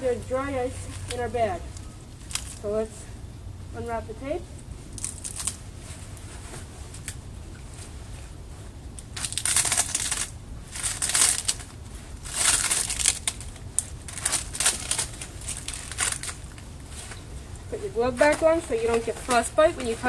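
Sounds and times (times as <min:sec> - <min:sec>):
tape ripping and rustling: 0:00.8 - 0:02.7, 0:04.9 - 0:08.0, 0:09.0 - 0:17.3.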